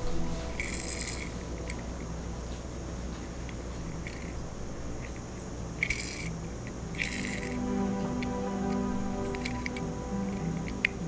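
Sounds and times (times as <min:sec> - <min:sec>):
low steady hum: 0:00.0 - 0:11.0
toy car rattle: 0:00.6 - 0:01.8, 0:04.0 - 0:04.3, 0:05.0 - 0:07.6
toy car ticks and clicks: 0:00.6 - 0:01.8, 0:04.0 - 0:04.3, 0:05.8 - 0:07.6, 0:09.2 - 0:11.0.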